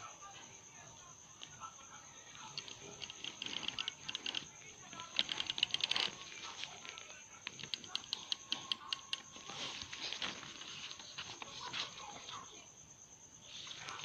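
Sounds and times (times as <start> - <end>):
correction tape reel ticking: 2.4 - 10.6.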